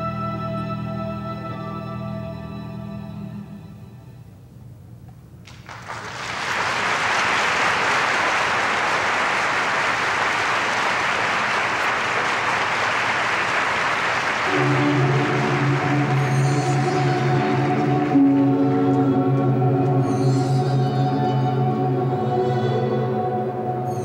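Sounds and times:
music with long held notes: 0:00.0 - 0:04.4, 0:14.3 - 0:24.0
audience applauding: 0:05.4 - 0:18.6.

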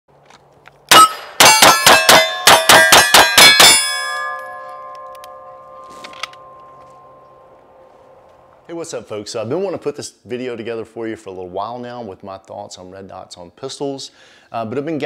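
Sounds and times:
pistol shots: 0:00.9 - 0:04.4
steel target ringing: 0:00.9 - 0:07.9.

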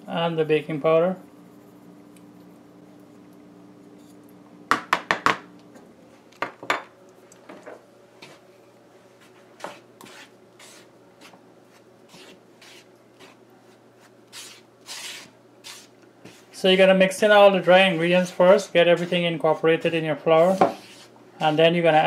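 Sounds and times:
spatula scraping flour in basin: 0:09.6 - 0:22.0.

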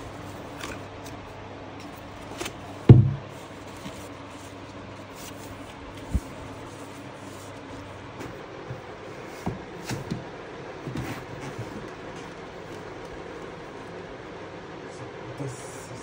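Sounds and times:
steady low hum: 0:00.0 - 0:16.0
dull thump: 0:02.8 - 0:03.3.

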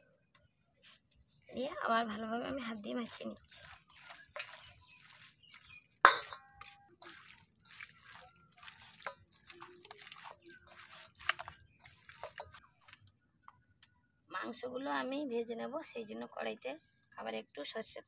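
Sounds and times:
wet squelching of meat by hand: 0:02.7 - 0:13.1
knock on metal bowl: 0:06.1 - 0:06.7.

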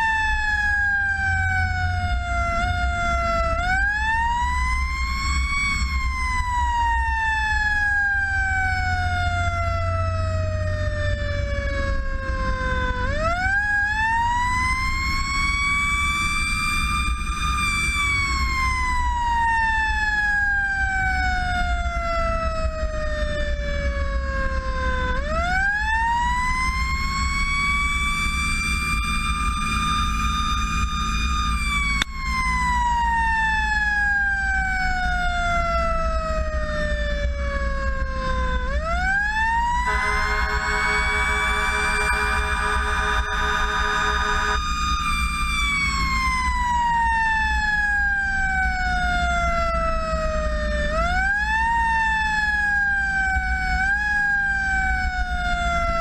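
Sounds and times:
truck engine drone: 0:00.0 - 0:21.6, 0:38.0 - 0:50.9
fire engine siren wailing: 0:00.0 - 0:56.0.

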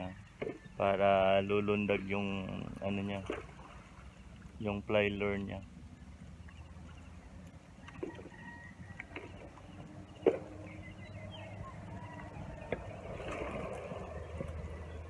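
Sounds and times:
waves rumbling over rocks: 0:11.6 - 0:15.0.

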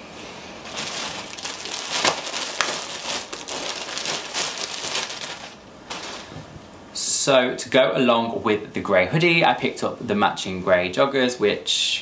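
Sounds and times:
plastic bag crinkling: 0:00.6 - 0:06.6.

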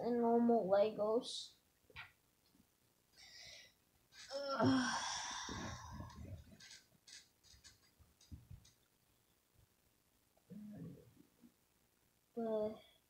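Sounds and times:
person sighing heavily: 0:04.3 - 0:06.4.

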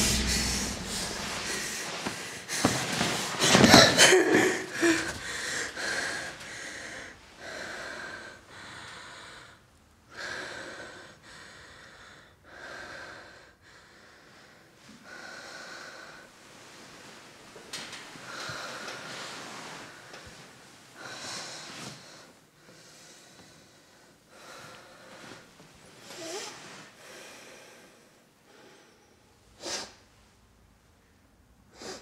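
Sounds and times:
woman breathing hard: 0:00.0 - 0:16.3
woman gasping: 0:03.4 - 0:08.7.

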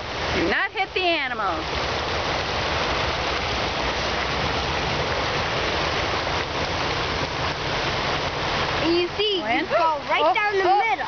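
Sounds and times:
water splashing into pond: 0:00.0 - 0:11.0.

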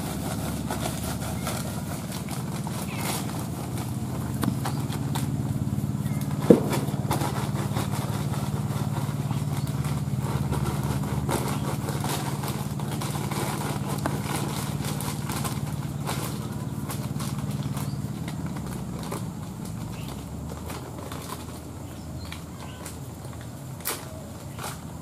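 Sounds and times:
engine idling: 0:00.0 - 0:25.0
sharp tap: 0:06.4 - 0:07.3.

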